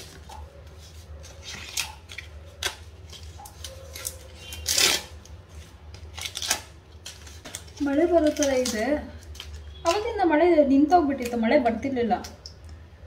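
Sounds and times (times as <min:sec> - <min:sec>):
corn husk leaves tearing: 0:01.2 - 0:10.1.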